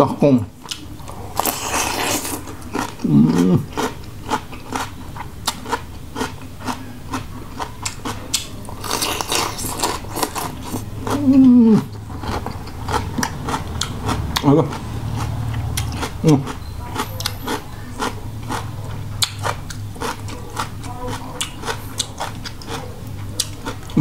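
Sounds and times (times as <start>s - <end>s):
wet chewing clicks: 0.6s - 24.0s
man humming: 3.0s - 3.7s, 11.1s - 11.9s.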